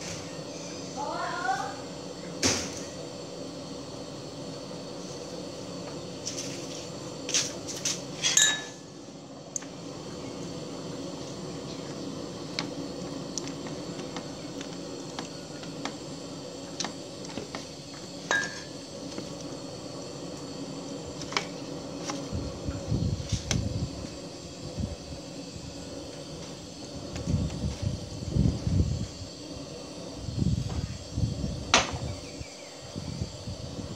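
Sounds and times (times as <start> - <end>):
steady low hum: 0.0 - 33.9.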